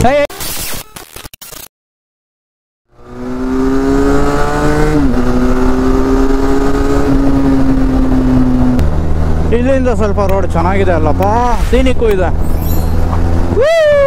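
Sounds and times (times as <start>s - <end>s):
motorcycle engine running: 3.1s - 11.5s.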